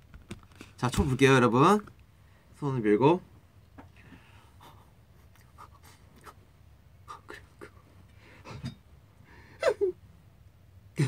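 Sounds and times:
man breathing softly: 3.9 - 5.0, 8.1 - 9.6
man's vocal noises: 7.0 - 7.8.

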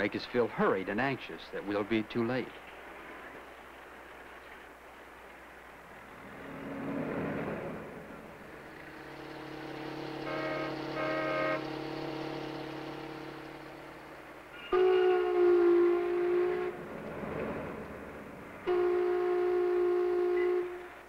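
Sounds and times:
steady engine drone: 5.7 - 21.0
cartoon car passing: 6.4 - 14.8
car horn toots: 9.5 - 13.8, 14.6 - 16.8, 18.7 - 20.9.

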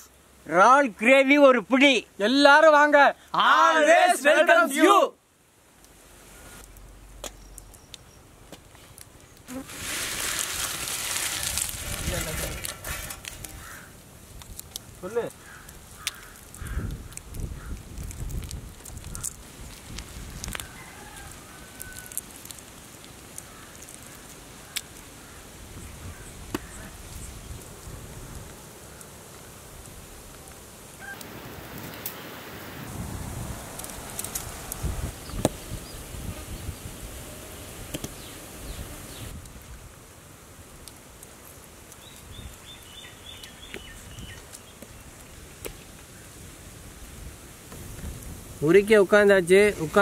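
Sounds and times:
outdoor background noise: 0.0 - 50.0
small bird chirping: 7.2 - 8.3
prawn shells snapping off: 15.5 - 19.4
faint clicks: 15.5 - 20.7.

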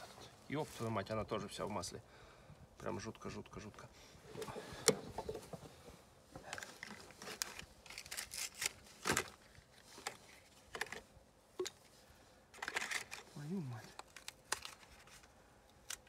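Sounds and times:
tools and parts clicking and scraping: 12.5 - 13.3.

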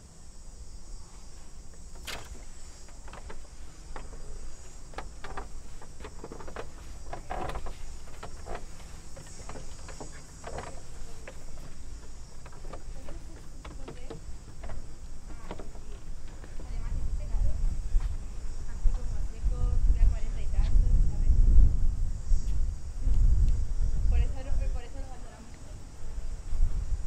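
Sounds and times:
insects droning: 0.0 - 27.0
footsteps on stone: 1.6 - 18.2.

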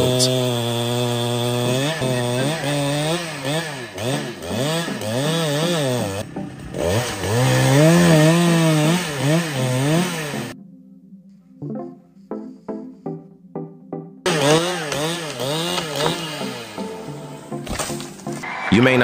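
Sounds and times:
chainsaw cutting tree limb: 0.0 - 10.6, 14.3 - 18.4.

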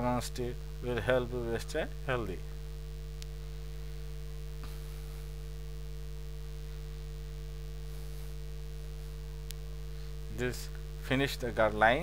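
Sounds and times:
electrical mains hum: 0.0 - 12.0
faint click: 3.2 - 3.4, 9.4 - 9.6.

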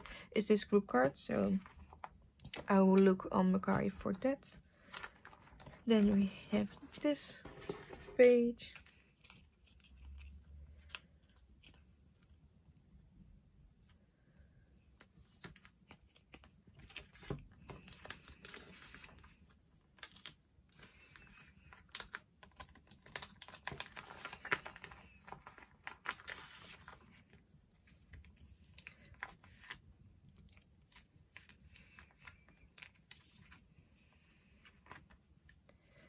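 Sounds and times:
plastic crinkling: 20.0 - 27.3.

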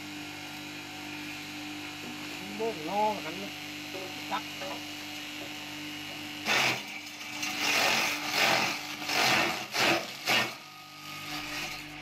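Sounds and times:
grass chopper motor hum: 1.1 - 12.0
grass stalks being cut rasping: 6.4 - 10.6.

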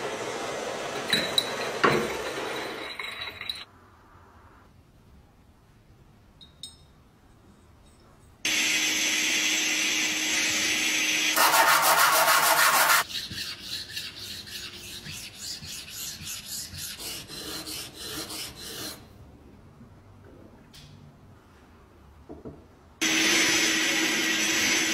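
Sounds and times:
blade scraping on sandpaper: 11.3 - 19.0.

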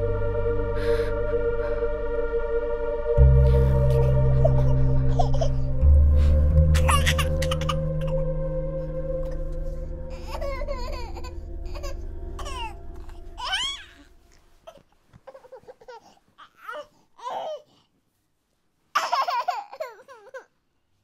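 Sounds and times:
low steady drone: 0.0 - 14.4
baby babbling: 10.1 - 14.1.

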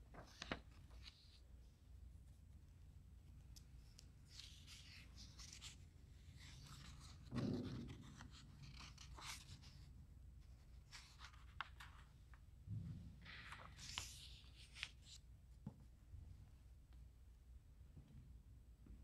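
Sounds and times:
soft low thump: 12.7 - 13.2.

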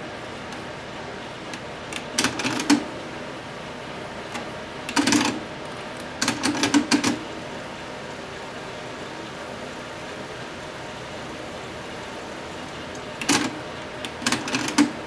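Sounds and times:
cassette deck mechanism clicking: 4.3 - 5.4, 13.0 - 15.0.

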